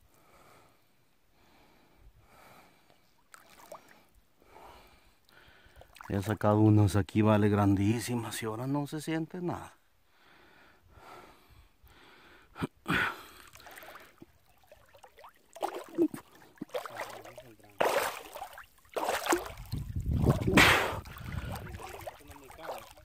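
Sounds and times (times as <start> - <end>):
water sloshing and splashing: 3.2 - 4.0, 5.7 - 6.2, 13.4 - 23.0.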